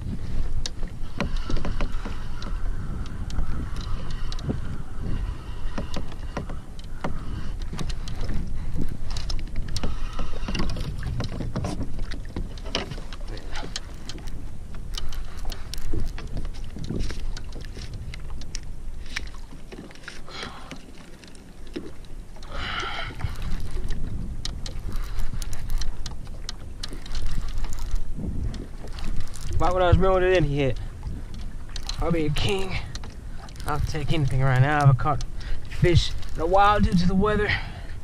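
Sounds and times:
water lapping against hull: 0:00.0 - 0:38.0
wind buffeting microphone: 0:00.0 - 0:38.0
small clicks and knocks: 0:05.7 - 0:22.5, 0:23.2 - 0:29.7, 0:30.3 - 0:36.4.

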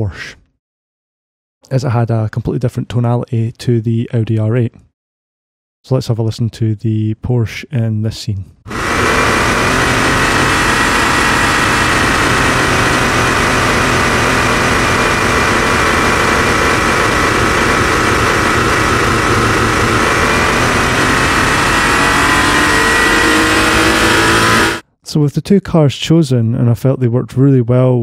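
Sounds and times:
synthesized sports car engine: 0:08.7 - 0:24.8.

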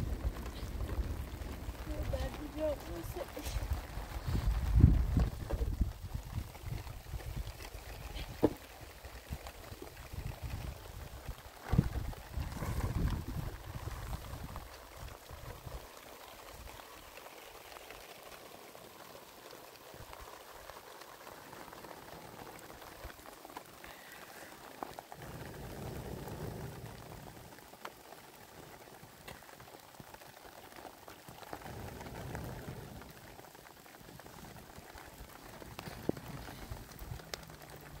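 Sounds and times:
low rumbling: 0:00.0 - 0:08.7, 0:09.3 - 0:15.8, 0:25.1 - 0:27.6, 0:31.4 - 0:38.0
wood fire hissing and crackling: 0:00.0 - 0:38.0.

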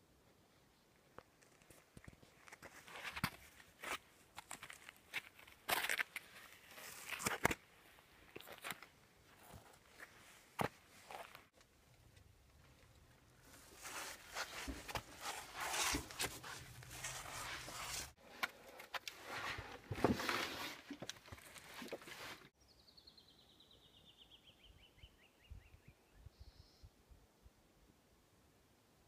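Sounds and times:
shoes scraping on rock and sand: 0:13.5 - 0:18.2.

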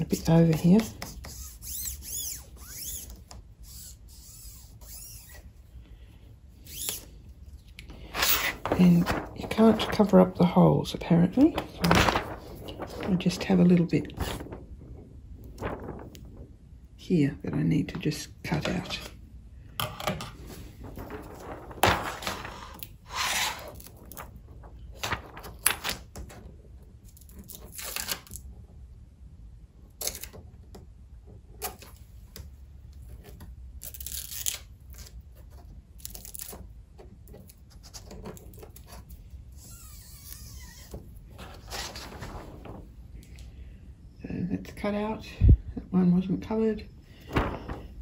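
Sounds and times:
handling noises cutting tape: 0:06.6 - 0:07.1, 0:37.3 - 0:41.0.

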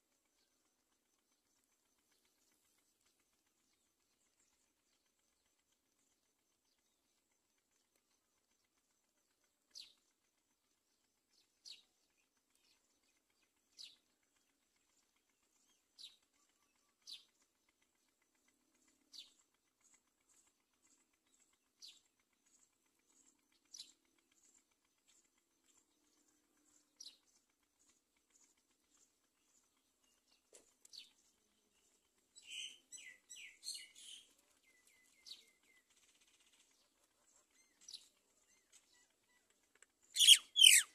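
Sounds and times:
bird chirping: 0:00.3 - 0:10.1, 0:10.7 - 0:17.4, 0:18.0 - 0:40.9.

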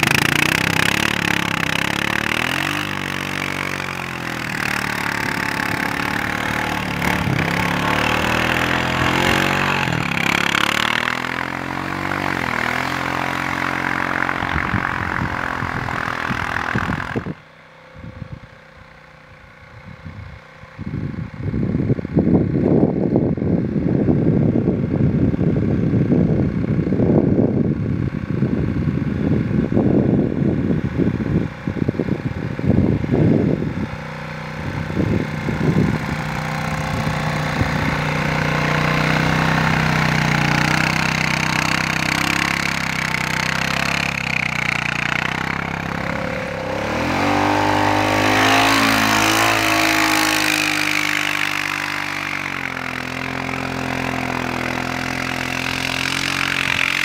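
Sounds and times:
atv engine passing by: 0:00.0 - 0:57.0
wind buffeting microphone: 0:00.0 - 0:57.0.

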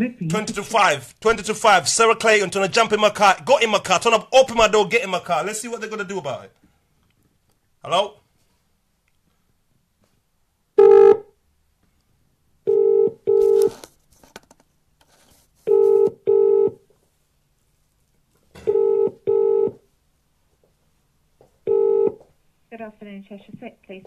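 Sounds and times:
telephone ringback tone: 0:10.8 - 0:11.2, 0:12.7 - 0:13.7, 0:15.7 - 0:16.8, 0:18.6 - 0:19.8, 0:21.7 - 0:22.2.

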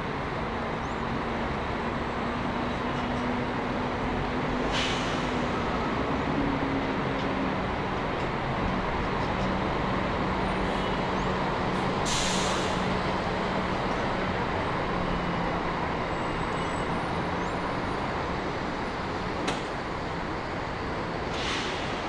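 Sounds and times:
bus engine hum: 0:00.0 - 0:22.0
traffic noise: 0:00.0 - 0:22.0
air-brake hiss: 0:04.6 - 0:05.7, 0:12.0 - 0:13.0, 0:21.2 - 0:22.0.

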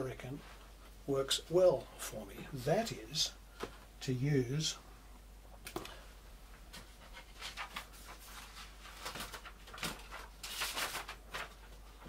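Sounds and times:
paper rustling: 0:06.7 - 0:12.0.

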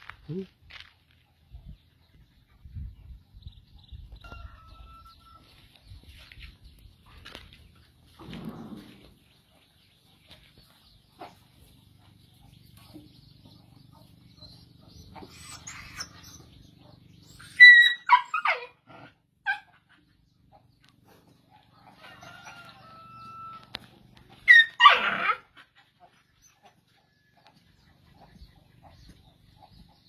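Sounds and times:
high squealing animal calls: 0:15.1 - 0:16.6.

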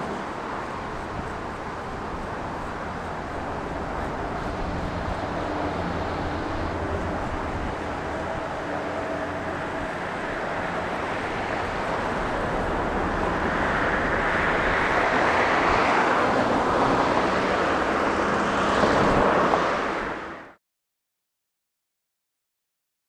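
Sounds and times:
vehicle passing: 0:03.0 - 0:20.5.

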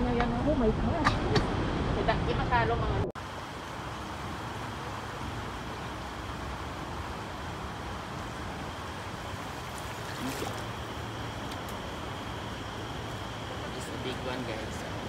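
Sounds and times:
river water running over stones: 0:03.2 - 0:13.5.

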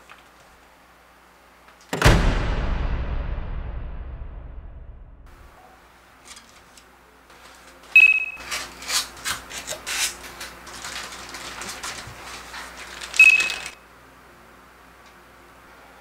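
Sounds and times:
plastic bags crinkling: 0:06.4 - 0:13.8.

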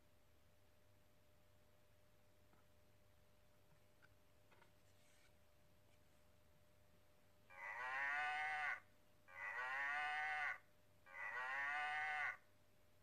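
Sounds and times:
recorded cow mooing: 0:07.5 - 0:12.4.

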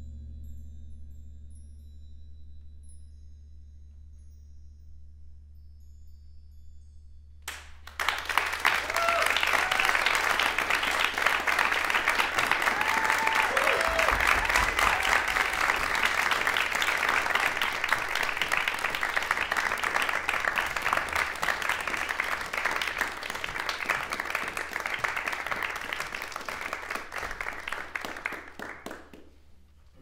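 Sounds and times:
audience applauding: 0:07.5 - 0:29.4.

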